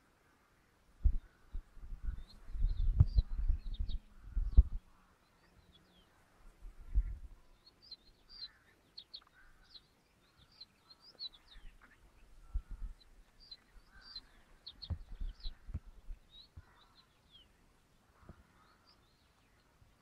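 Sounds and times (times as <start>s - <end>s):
small birds chirping: 0.0s - 20.0s
dull low thumps: 1.0s - 4.8s, 14.8s - 16.4s.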